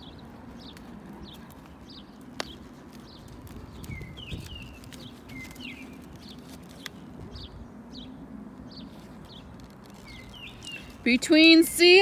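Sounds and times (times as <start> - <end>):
soft horse hoofbeats on dirt: 0.0 - 7.1
small bird chirping: 0.0 - 11.6.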